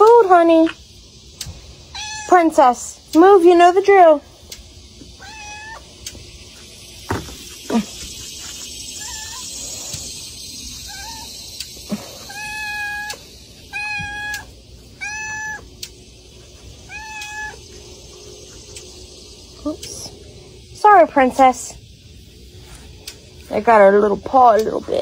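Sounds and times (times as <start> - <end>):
cat meowing: 1.9 - 2.3, 5.2 - 5.8, 9.0 - 9.5, 10.8 - 11.3, 12.2 - 15.7, 16.8 - 17.6
sharp knocks: 7.1 - 7.5.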